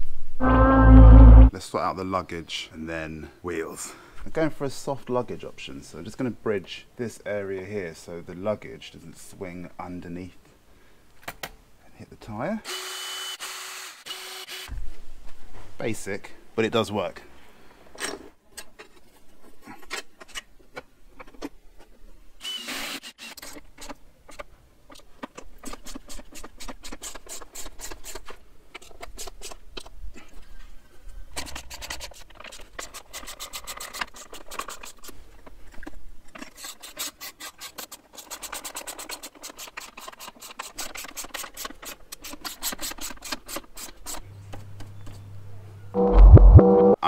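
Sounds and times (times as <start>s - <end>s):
short rising squeak: 0.4s - 1.5s
rubbing and scraping: 23.4s - 29.9s, 31.3s - 44.3s.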